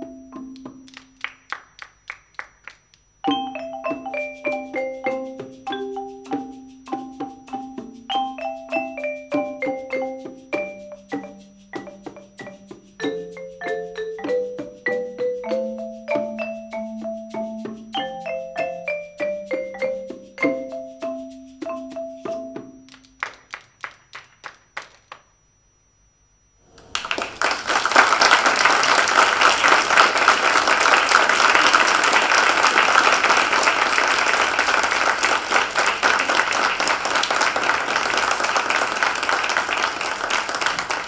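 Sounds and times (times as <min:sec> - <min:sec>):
vibraphone and marimba ringing: 0:00.0 - 0:00.9, 0:03.2 - 0:22.9
audience applause: 0:26.8 - 0:41.0.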